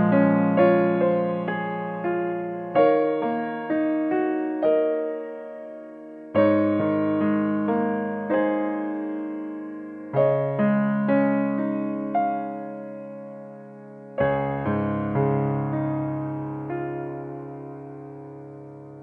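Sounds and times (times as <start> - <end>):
gentle piano music: 0.0 - 19.0.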